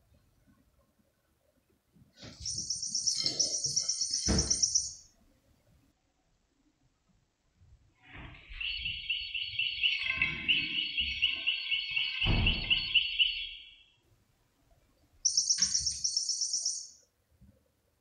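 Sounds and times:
bird-like chirping trills: 2.4 - 5.1, 8.4 - 14.0, 15.2 - 17.0.

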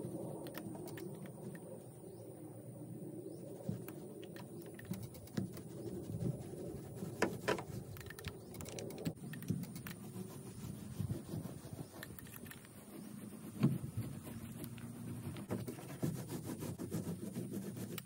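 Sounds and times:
paint roller rolling: 3.6 - 18.0.

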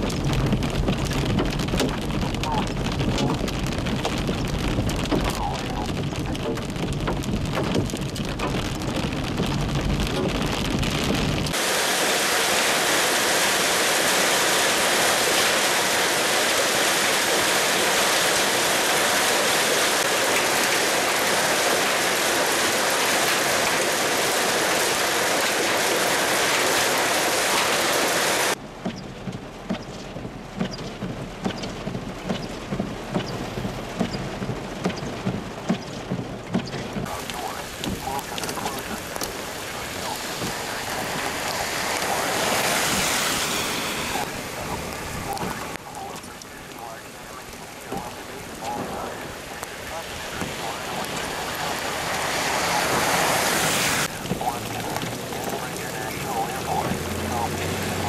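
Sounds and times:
vehicle driving rumble: 0.0 - 11.6, 28.5 - 58.0
sharp hail taps: 0.0 - 14.3, 14.9 - 58.0
hail and rain falling: 0.0 - 28.6, 31.0 - 58.0.

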